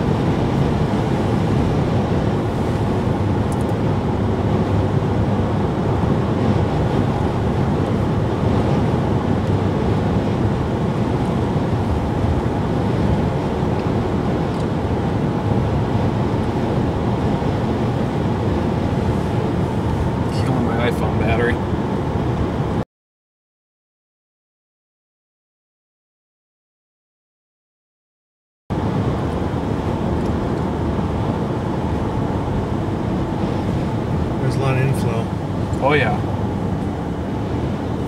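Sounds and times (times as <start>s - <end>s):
car cabin road and engine rumble: 0.0s - 22.8s, 28.7s - 38.0s.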